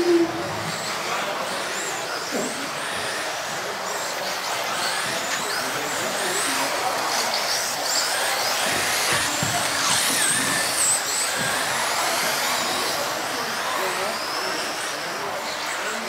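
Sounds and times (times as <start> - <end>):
model car motors whining: 0.0 - 16.0.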